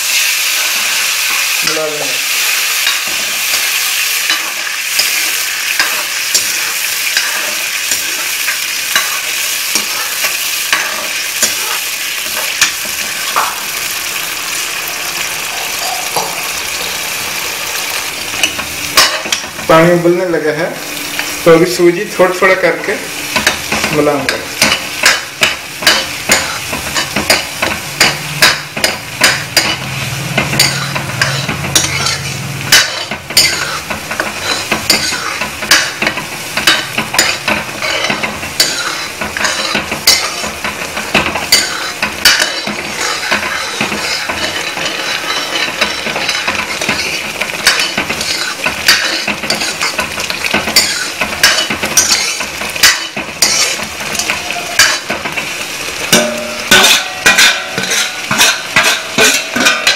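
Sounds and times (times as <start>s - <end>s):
ladle scraping metal pan: 2.8s - 14.1s, 23.3s - 59.9s.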